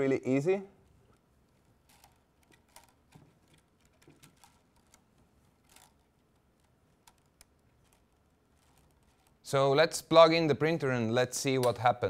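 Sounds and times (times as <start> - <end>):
light rustling of filament: 0.8 - 9.7.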